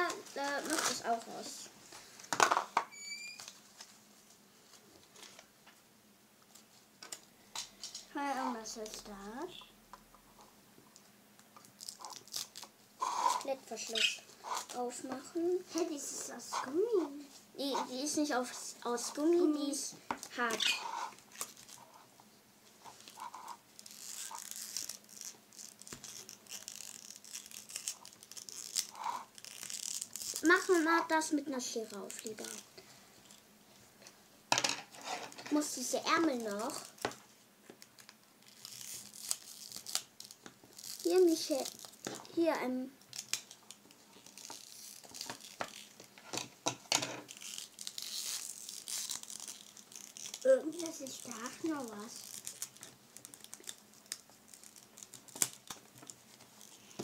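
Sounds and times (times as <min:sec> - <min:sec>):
plastic packaging rustling: 0:00.0 - 0:05.5, 0:18.9 - 0:22.1, 0:22.7 - 0:33.4, 0:34.9 - 0:57.0.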